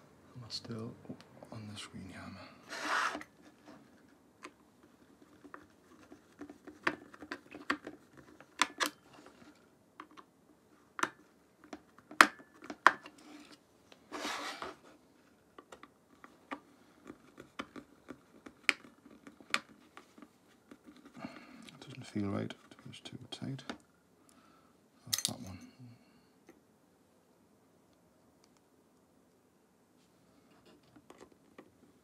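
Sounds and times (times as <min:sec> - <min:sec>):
soft rustle: 0:13.1 - 0:15.5.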